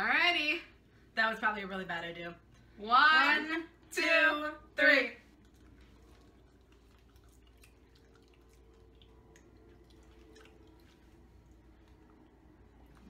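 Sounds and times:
low room hum: 0:00.0 - 0:13.0
chewing sounds: 0:05.2 - 0:13.0.

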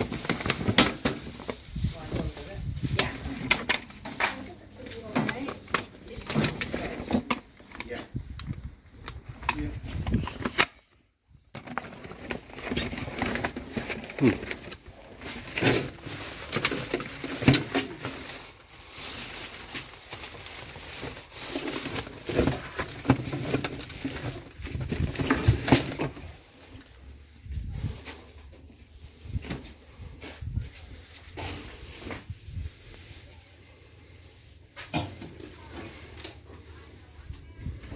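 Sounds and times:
plastic bags rustling: 0:00.0 - 0:10.6, 0:11.5 - 0:37.9.

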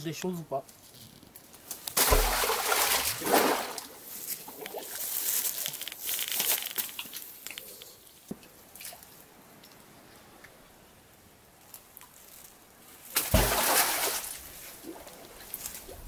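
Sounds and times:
water sloshing and dripping: 0:01.9 - 0:05.6, 0:13.2 - 0:16.0
magnet splashing into water: 0:02.0 - 0:03.9, 0:13.2 - 0:15.2
rope rustling: 0:04.2 - 0:08.3.

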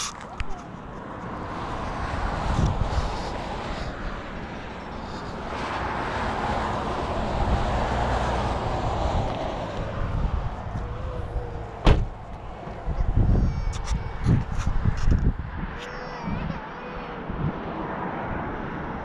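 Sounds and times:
wind buffeting microphone: 0:00.0 - 0:19.0
sharp bang: 0:11.8 - 0:12.2.

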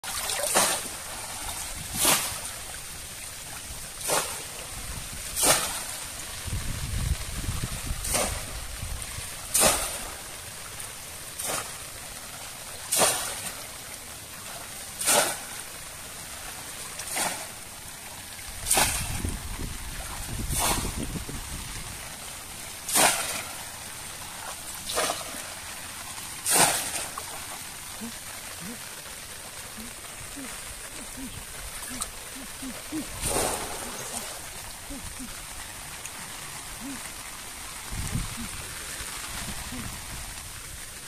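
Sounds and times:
fish trap splashing into water: 0:00.0 - 0:02.5, 0:04.0 - 0:04.6, 0:05.3 - 0:06.0, 0:08.0 - 0:08.6, 0:09.5 - 0:10.3, 0:12.9 - 0:13.6, 0:15.0 - 0:15.6, 0:17.0 - 0:17.6, 0:18.6 - 0:19.4, 0:20.0 - 0:21.2, 0:22.8 - 0:23.7, 0:24.8 - 0:25.6, 0:26.4 - 0:27.6, 0:33.2 - 0:34.6
water sloshing: 0:00.0 - 0:06.4, 0:07.8 - 0:41.0.

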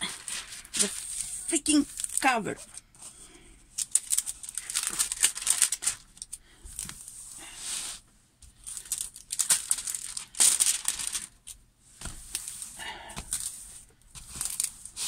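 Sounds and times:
plastic film crinkling: 0:00.0 - 0:02.8, 0:03.7 - 0:07.1, 0:08.6 - 0:13.6, 0:14.2 - 0:15.0.

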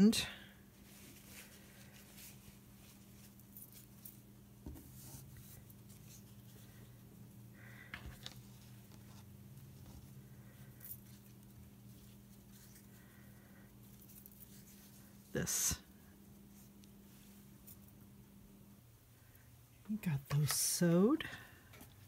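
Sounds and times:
steady low hum: 0:00.0 - 0:22.0
fabric rustling: 0:00.8 - 0:07.1.

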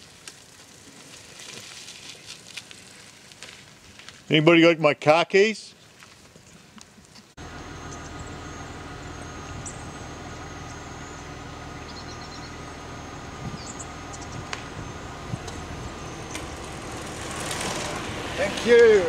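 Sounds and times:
car engine and road hum: 0:07.3 - 0:19.0.

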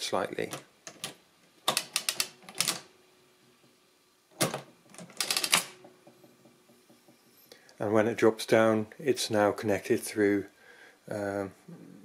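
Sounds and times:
adding machine clattering clicks: 0:00.5 - 0:02.9, 0:04.4 - 0:05.8.

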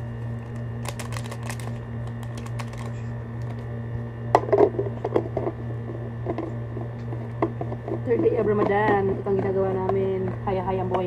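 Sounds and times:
steady low hum: 0:00.0 - 0:11.0
sweetener sachet shaken: 0:00.8 - 0:03.1.

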